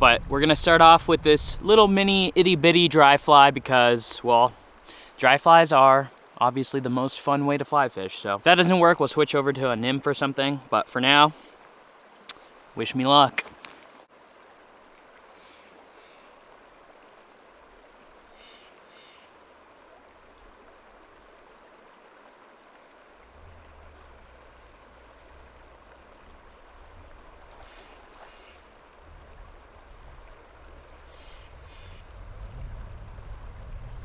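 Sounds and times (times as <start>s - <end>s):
river flowing over rocks: 13.5s - 34.0s
low rumble: 23.2s - 27.6s, 28.8s - 34.0s.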